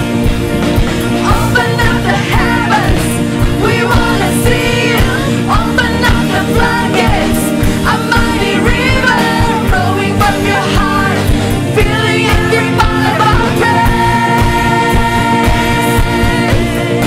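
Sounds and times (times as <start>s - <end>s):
acoustic guitar: 0.0s - 17.0s
backing singers: 0.0s - 17.0s
keyboard: 0.0s - 17.0s
steady beat: 0.0s - 17.0s
woman singing lead: 1.0s - 17.0s.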